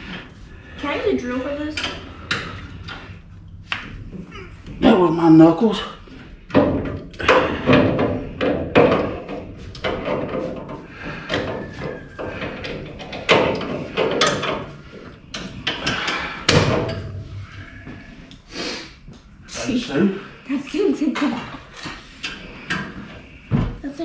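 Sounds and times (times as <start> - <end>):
wrenches clanking on metal frame: 1.4 - 3.3, 5.8 - 18.0.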